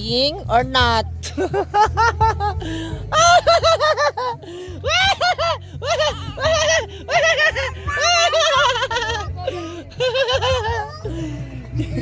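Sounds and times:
person laughing: 1.3s - 11.2s
short breaths: 2.6s - 3.1s, 4.4s - 4.8s.

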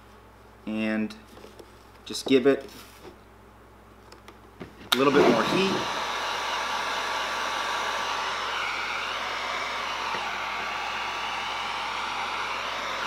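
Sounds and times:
heat gun blowing: 4.9s - 13.0s.

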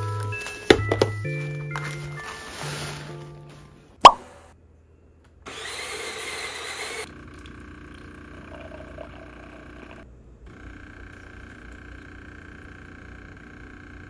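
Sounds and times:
espresso machine humming: 5.5s - 14.0s
espresso machine whirring: 5.5s - 14.0s.

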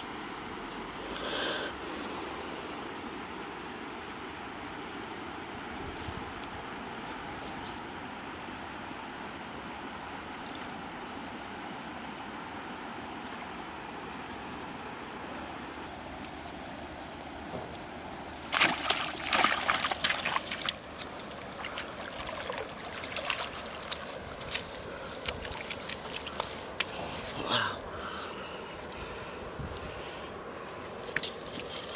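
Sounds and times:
steady outdoor hiss: 0.0s - 31.9s
fish splashing in water: 18.4s - 27.0s.

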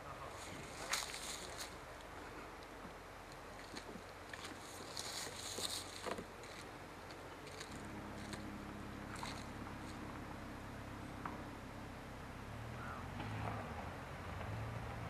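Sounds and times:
low hum: 0.0s - 15.0s
bear stepping through dry leaves: 0.3s - 2.0s, 3.5s - 6.7s, 7.4s - 8.5s, 9.1s - 10.0s.

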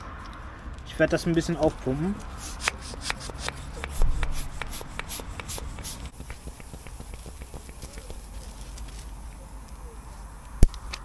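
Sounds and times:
bicycle pump strokes: 2.2s - 9.8s.

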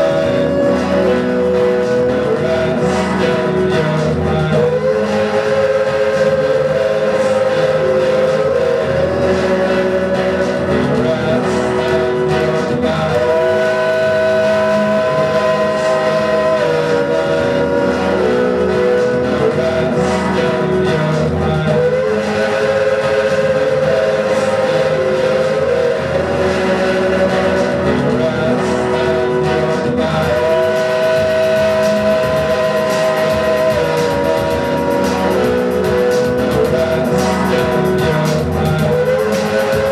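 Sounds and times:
band playing sustained chord: 0.0s - 39.9s.

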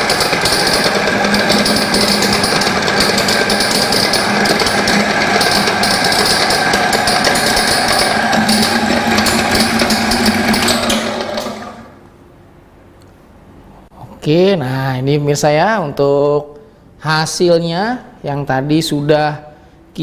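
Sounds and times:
grinding mill clatter and whine: 0.0s - 12.1s.

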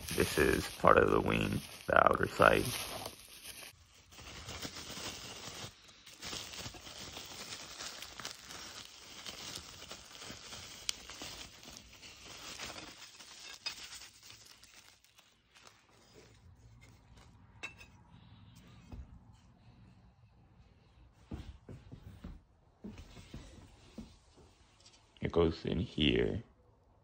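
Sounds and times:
packaging crinkling and rustling: 0.0s - 17.2s.

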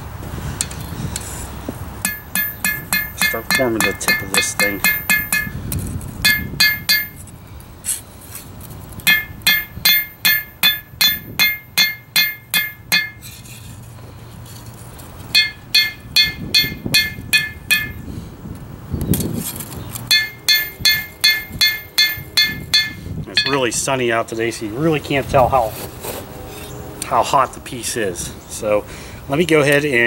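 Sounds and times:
hammer striking steel on anvil: 2.0s - 5.6s, 6.2s - 7.2s, 9.1s - 13.3s, 15.3s - 18.0s, 20.1s - 23.8s.

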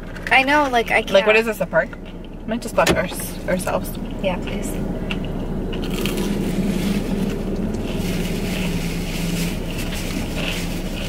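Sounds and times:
car engine idling: 0.0s - 11.0s
chewing: 5.0s - 11.0s.

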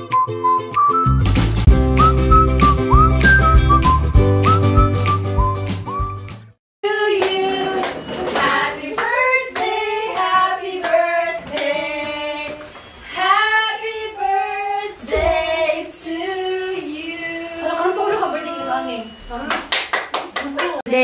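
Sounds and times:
women singing together: 6.8s - 19.2s.

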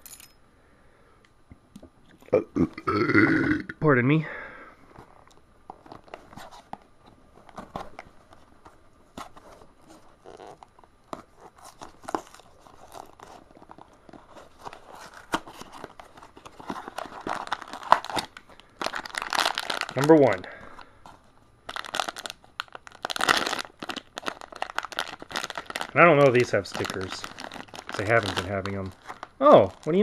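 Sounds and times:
paper crinkling: 4.9s - 30.0s.

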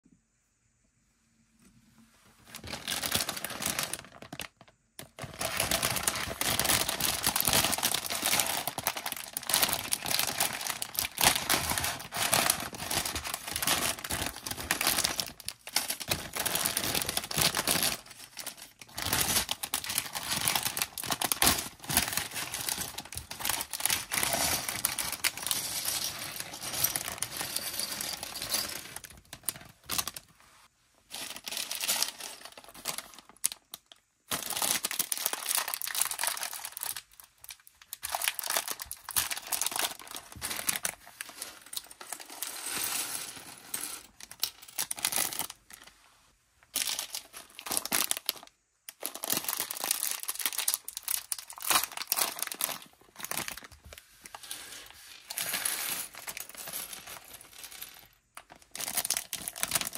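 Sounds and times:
plastic bags crinkling: 2.4s - 30.4s, 31.1s - 45.9s, 46.6s - 59.9s.

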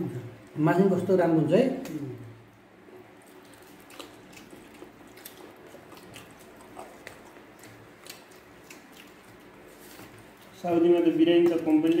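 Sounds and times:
chewing with wet mouth smacks: 3.0s - 10.6s
fingers in foil tray: 5.3s - 12.0s.

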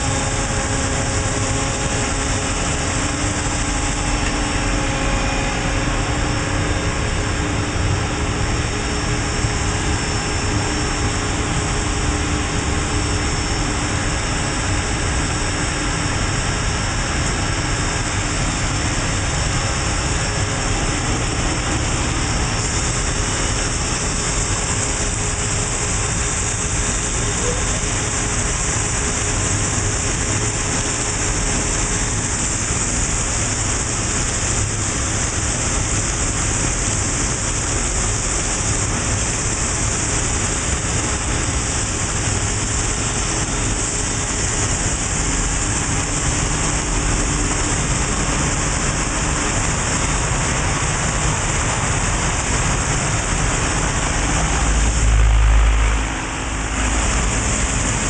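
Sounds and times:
coolant splashing hiss: 0.0s - 58.0s
low machine hum: 0.0s - 58.0s.

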